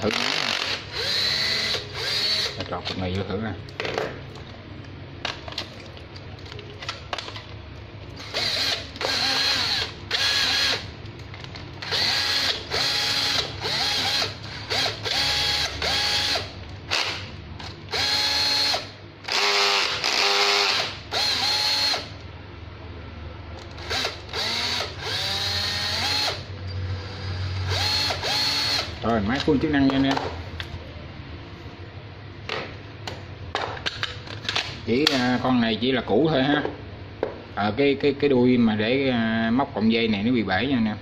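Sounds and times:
cordless drill motor whining: 0.1 - 2.6, 8.2 - 10.8, 11.8 - 17.1, 17.9 - 22.1, 23.8 - 26.4, 27.0 - 28.9.

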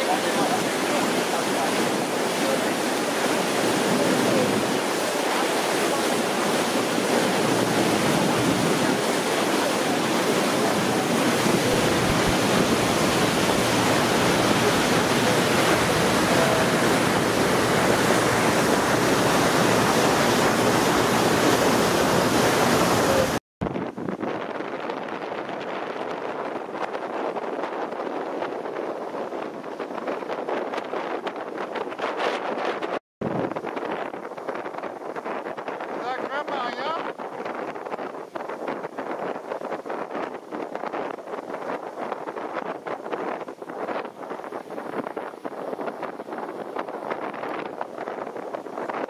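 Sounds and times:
hiss of boat wake: 0.0 - 23.4
wind on microphone: 0.0 - 49.0.

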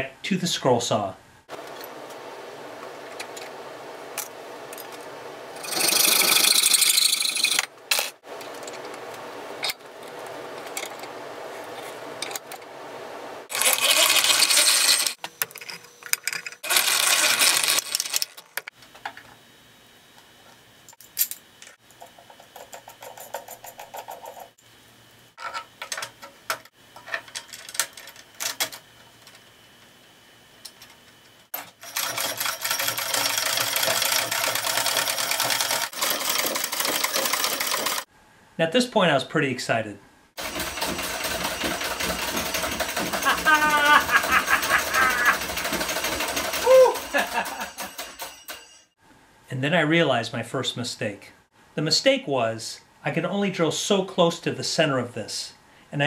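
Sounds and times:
electric drill boring metal: 5.6 - 7.7, 13.5 - 18.5, 40.4 - 48.9
treadle scroll saw running: 5.6 - 8.1, 13.5 - 15.2, 16.5 - 18.7, 31.7 - 38.1, 40.4 - 48.9
metal parts clinking: 13.5 - 18.7.

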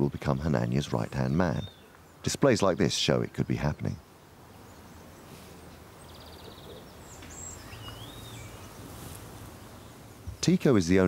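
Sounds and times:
birds calling: 0.0 - 11.0
whistled bird notes: 6.1 - 8.7.

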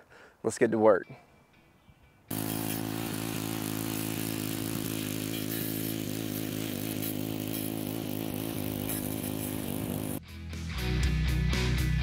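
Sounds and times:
lawn edger engine running: 2.3 - 10.2.

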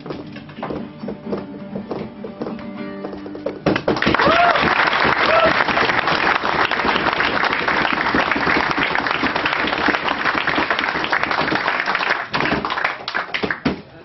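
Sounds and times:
audience applauding: 3.8 - 13.7.

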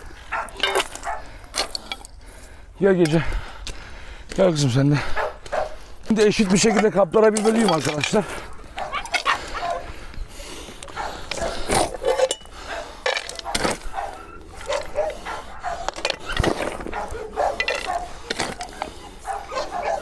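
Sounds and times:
dogs vocalising: 0.1 - 1.4, 5.1 - 7.0, 8.3 - 10.1, 10.7 - 20.0
clinks against feed bowls: 12.1 - 13.5, 17.4 - 19.0.

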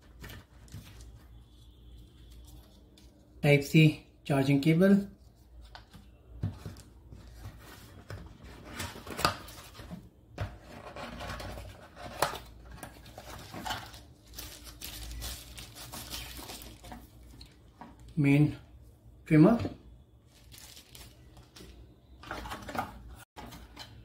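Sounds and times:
plastic bag crinkling: 13.0 - 17.6, 20.3 - 21.7.

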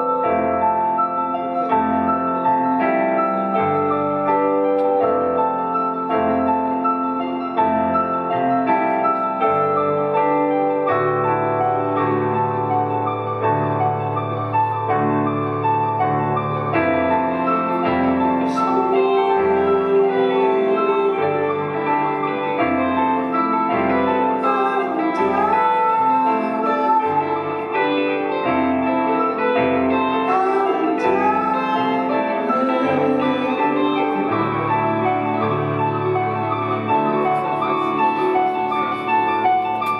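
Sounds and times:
piano chords: 0.0 - 39.9.

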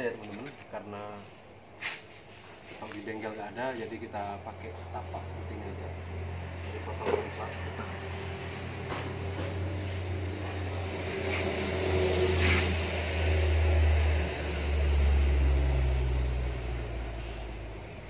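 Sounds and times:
vehicle engine passing: 3.8 - 18.0.

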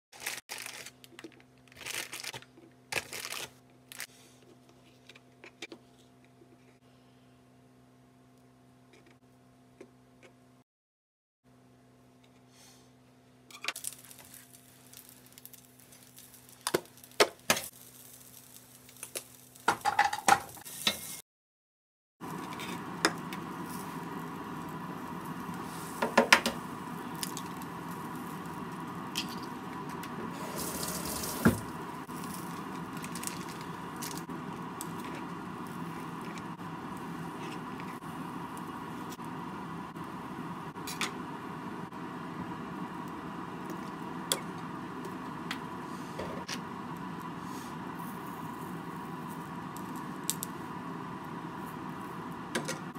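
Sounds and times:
sausages sizzling in pan: 13.8 - 21.2, 22.3 - 52.5.

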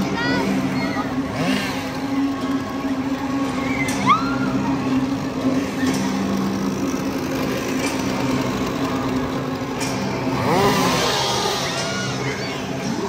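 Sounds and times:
chainsaw engine idling: 5.2 - 12.2.

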